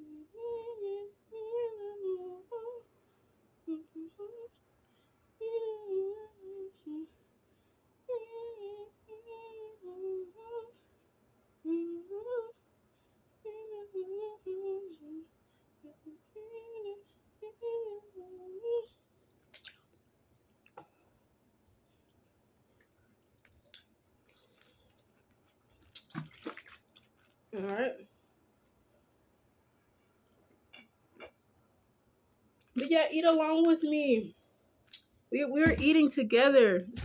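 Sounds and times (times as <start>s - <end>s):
person humming a tune: 0.0s - 2.9s, 3.6s - 4.5s, 5.4s - 7.1s, 8.1s - 10.8s, 11.6s - 12.6s, 13.4s - 18.9s.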